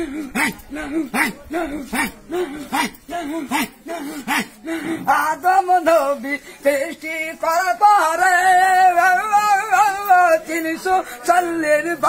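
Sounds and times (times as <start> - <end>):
man singing unaccompanied: 0.0 - 12.0.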